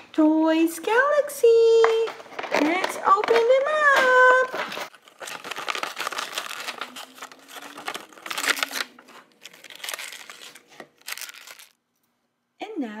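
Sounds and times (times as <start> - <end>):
plastic packaging crinkling: 2.2 - 11.8.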